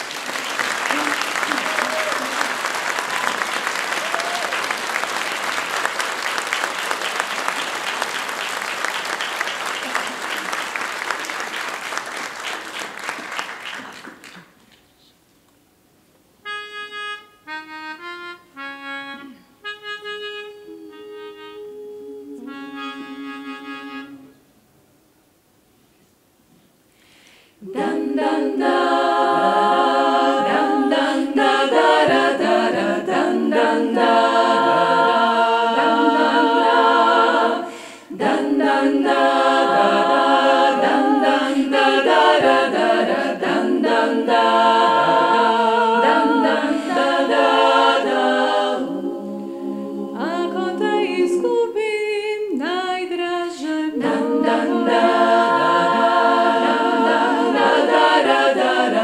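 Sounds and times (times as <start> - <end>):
women singing a cappella harmony: 19.1 - 24.4, 27.6 - 59.0.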